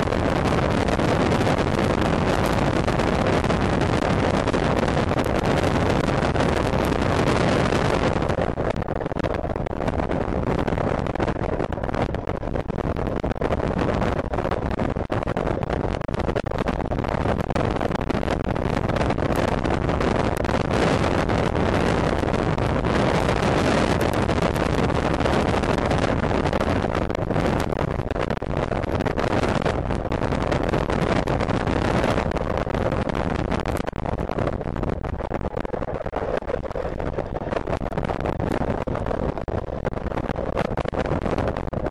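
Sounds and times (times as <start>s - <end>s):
wind buffeting microphone: 0.0s - 41.9s.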